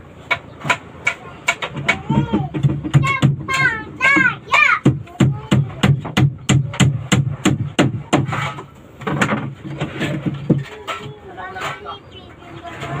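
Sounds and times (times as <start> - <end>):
hammer blows on wooden hull: 0.3 - 8.6.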